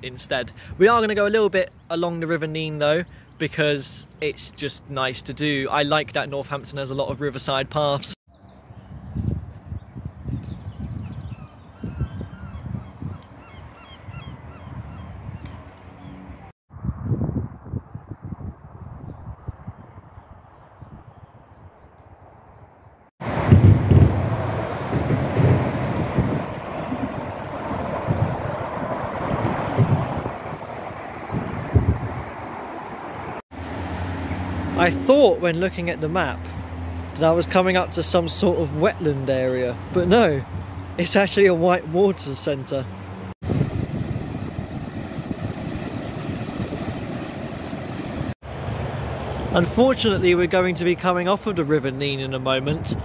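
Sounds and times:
wind buffeting microphone: 0:08.5 - 0:22.6, 0:23.2 - 0:33.4, 0:38.3 - 0:51.6, 0:52.6 - 0:53.0
road traffic rushing: 0:23.2 - 0:50.4.

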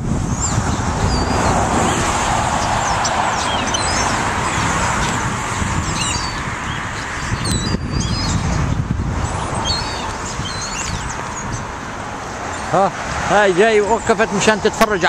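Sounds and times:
birds chirping and whistling: 0:00.2 - 0:11.8, 0:12.4 - 0:12.8.

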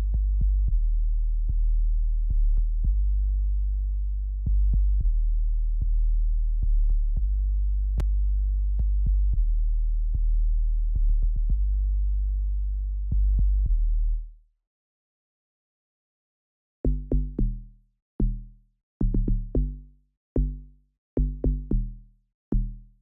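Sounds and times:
deep synth bass line: 0:00.0 - 0:14.0.

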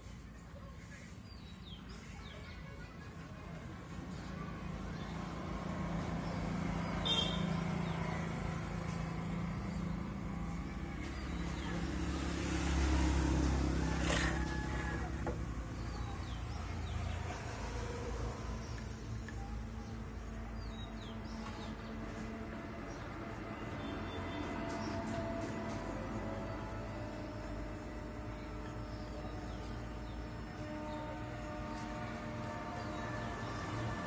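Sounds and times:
vehicle engine humming: 0:02.6 - 0:34.0.

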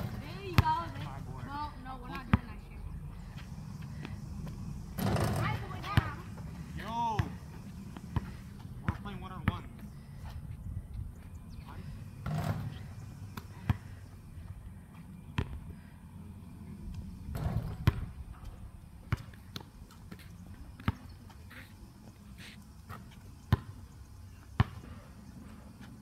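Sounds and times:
basketball bouncing on hard court: 0:05.0 - 0:06.2, 0:17.4 - 0:18.1, 0:19.1 - 0:20.2, 0:23.5 - 0:23.7, 0:24.6 - 0:24.8.

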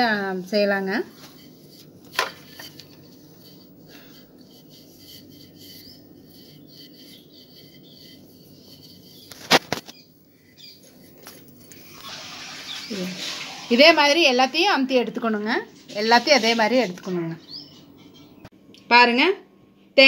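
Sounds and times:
rolling pin rolling dough: 0:00.0 - 0:10.1.

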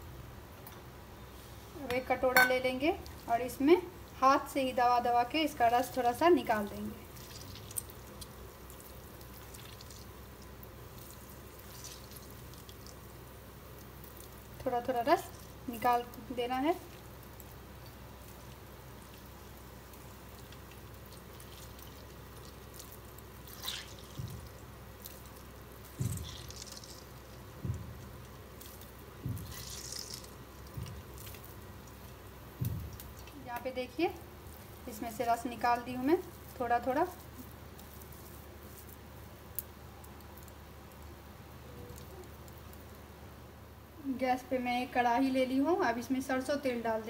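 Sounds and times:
low room hum: 0:00.0 - 0:47.0
juice dripping into steel bowl: 0:01.8 - 0:43.4
hands squeezing grated mango: 0:06.0 - 0:33.4.

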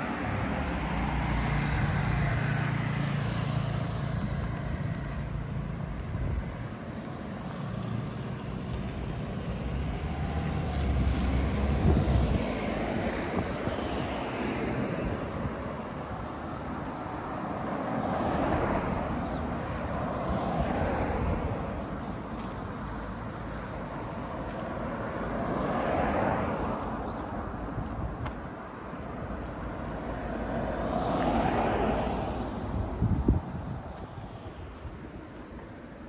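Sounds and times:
cars passing: 0:00.0 - 0:36.0
low wind rumble on microphone: 0:03.5 - 0:17.9, 0:26.8 - 0:30.1, 0:31.9 - 0:35.8.

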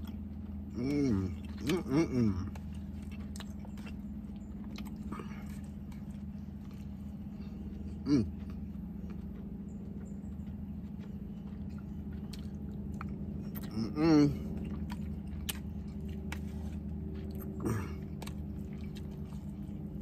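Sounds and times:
low hum: 0:00.0 - 0:20.0
man chewing food: 0:00.0 - 0:20.0
man saying mm: 0:00.7 - 0:02.6, 0:08.0 - 0:08.4, 0:13.6 - 0:14.5.

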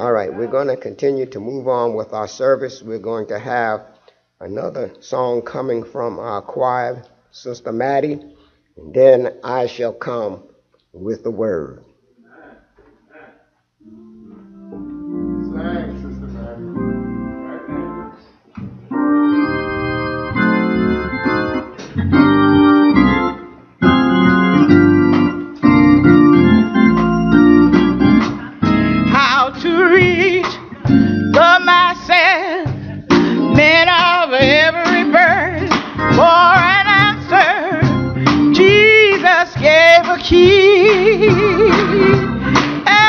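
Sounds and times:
keyboard chords: 0:13.8 - 0:43.0.

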